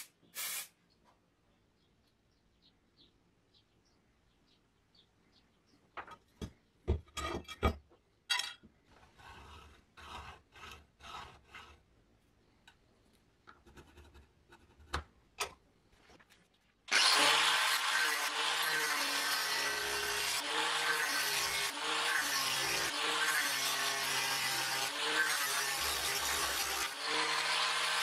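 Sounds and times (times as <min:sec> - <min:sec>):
pencil scratching on steel: 0:09.1 - 0:11.9, 0:13.6 - 0:15.0
angle grinder cutting metal: 0:16.9 - 0:28.0.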